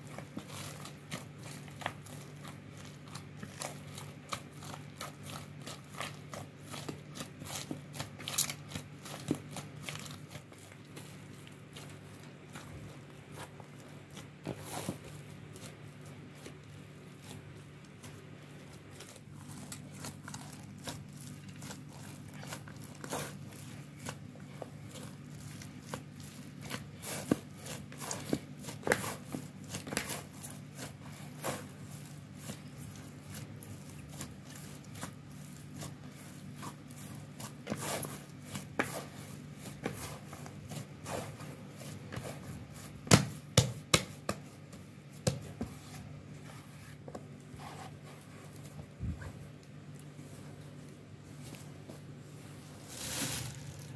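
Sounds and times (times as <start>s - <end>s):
hands kneading sticky dough: 0.0s - 53.9s.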